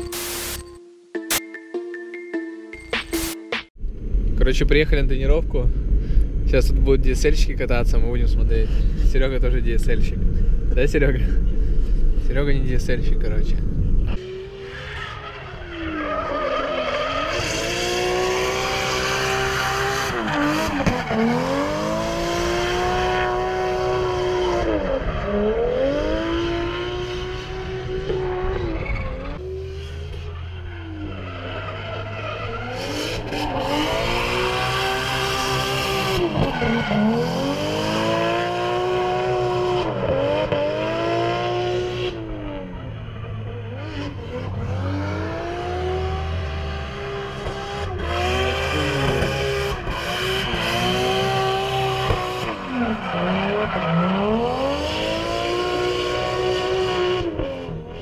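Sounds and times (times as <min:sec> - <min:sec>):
car engine revving: 0:12.8 - 0:58.0.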